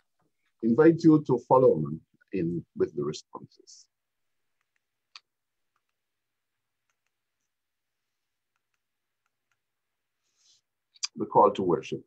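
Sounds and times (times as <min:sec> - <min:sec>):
faint computer mouse clicks: 0:04.6 - 0:06.0, 0:06.8 - 0:07.2.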